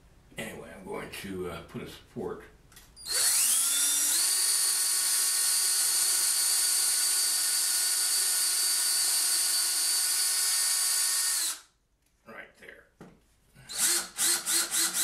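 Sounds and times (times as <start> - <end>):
cordless drill drilling wood: 3.0 - 11.7, 13.7 - 15.0.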